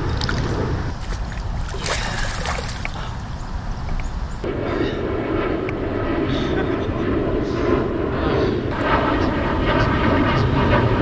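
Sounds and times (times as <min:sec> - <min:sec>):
fish thrashing and splashing water: 0:00.0 - 0:03.3
steady low rumble: 0:00.0 - 0:11.0.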